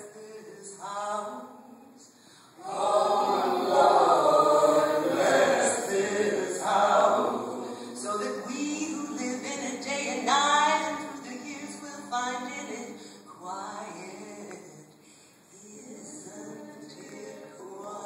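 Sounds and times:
choir singing: 2.6s - 11.7s, 15.6s - 18.0s.

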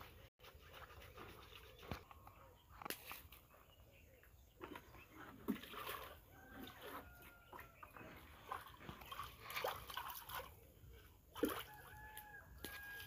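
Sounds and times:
water pouring and splashing: 5.4s - 10.7s, 11.3s - 13.0s.

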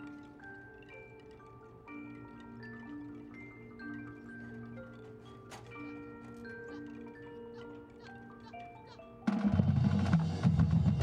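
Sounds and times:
marching band playing held notes: 9.2s - 11.0s.

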